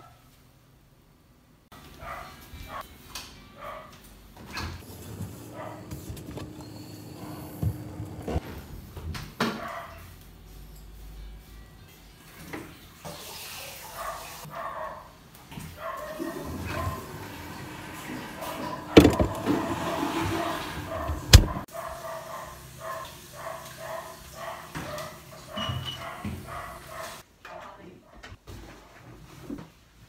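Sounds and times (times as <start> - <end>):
refrigerator door thuds: 18.9 - 19.7, 21.0 - 21.6
room door opening knock: 19.0 - 19.5.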